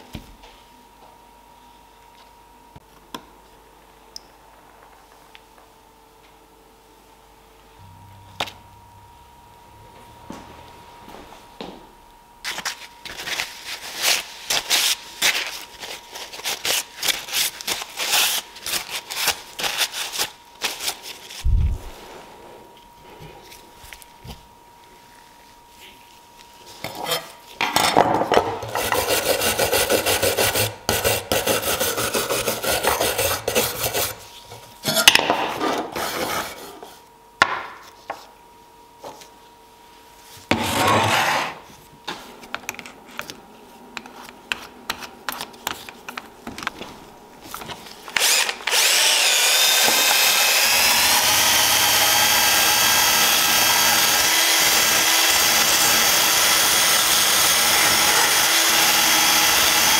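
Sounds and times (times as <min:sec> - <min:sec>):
wire brush scrubbing metal: 0:28.7 - 0:34.3
drill wire wheel whining on metal: 0:48.2 - 0:59.9.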